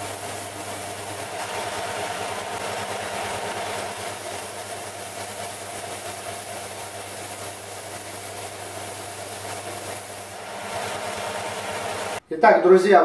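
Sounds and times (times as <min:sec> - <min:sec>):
belt sander sanding wood: 0:00.0 - 0:12.2.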